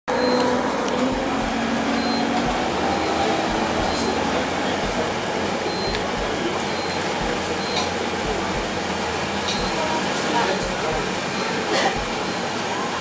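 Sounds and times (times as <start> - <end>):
low bumps: 0.2 - 5.2.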